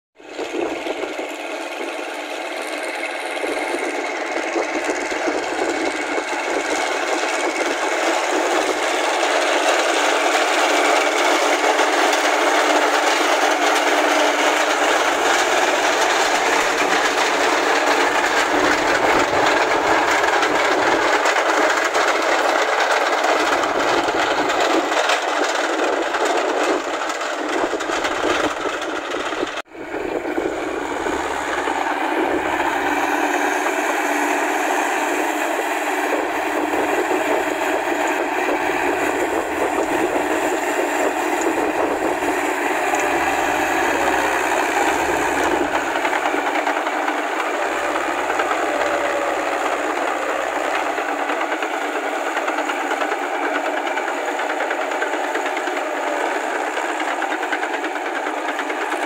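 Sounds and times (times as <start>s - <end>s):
tractor engine running: 0.2s - 59.0s.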